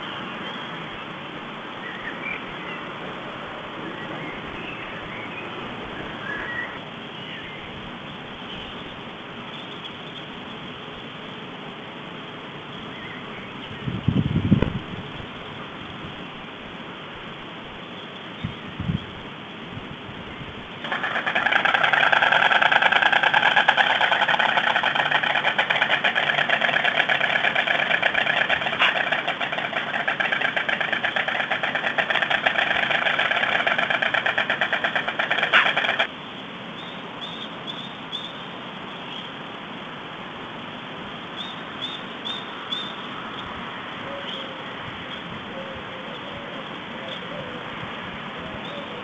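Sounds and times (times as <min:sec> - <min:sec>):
stork bill clattering: 0:20.8 - 0:36.1.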